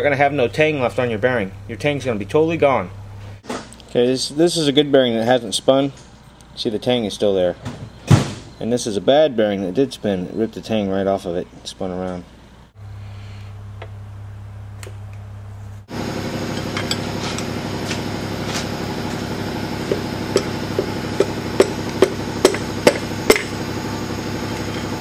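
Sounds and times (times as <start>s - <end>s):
steady mechanical hum: 0.0s - 25.0s
hammer striking metal: 19.8s - 23.6s.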